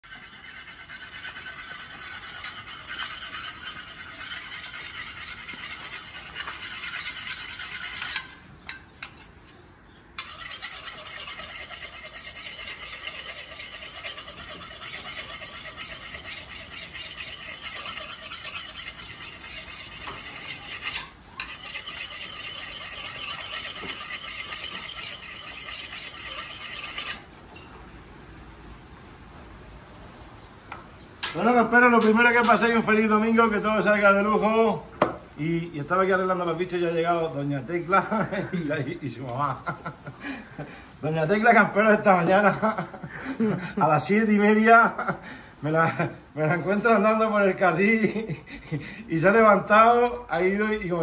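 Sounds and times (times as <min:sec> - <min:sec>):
knife scraping on sharpening steel: 0:00.0 - 0:09.2, 0:10.2 - 0:27.3.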